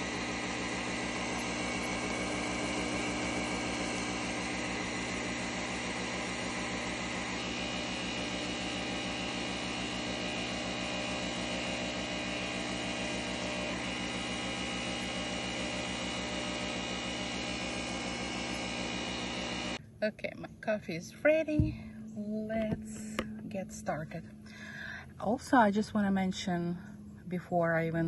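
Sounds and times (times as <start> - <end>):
coffee machine whirring: 0.0 - 19.8.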